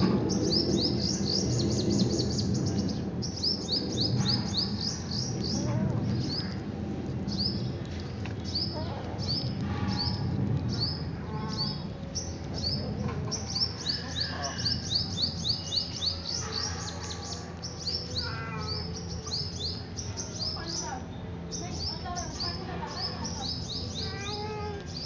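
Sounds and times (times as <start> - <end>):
small bird chirping: 7.3 - 25.0.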